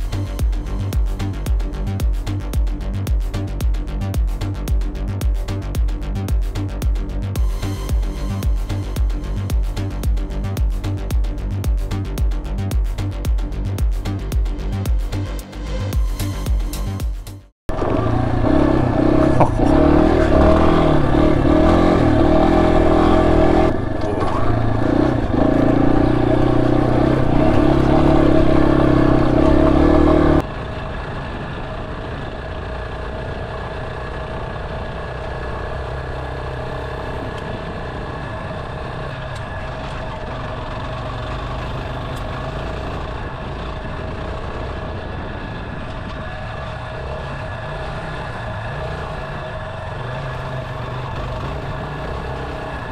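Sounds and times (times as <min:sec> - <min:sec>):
motorcycle engine revving: 0:17.7 - 0:52.9.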